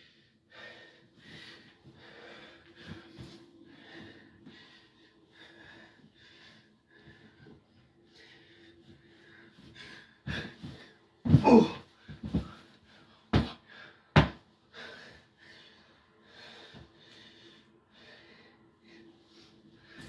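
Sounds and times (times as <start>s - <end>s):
man breathing heavily: 0.0s - 20.0s
body thudding onto mattresses: 10.2s - 14.4s.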